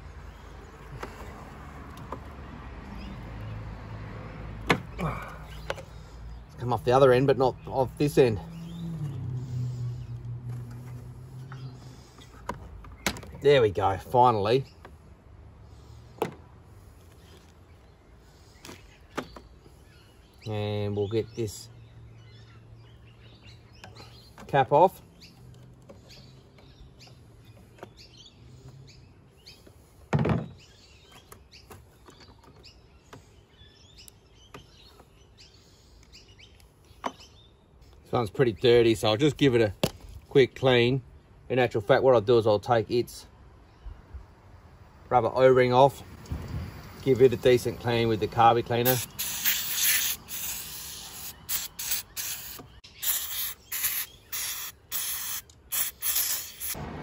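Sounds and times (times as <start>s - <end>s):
birds chirping: 0.0s - 56.8s
aerosol spray hissing: 48.8s - 56.8s.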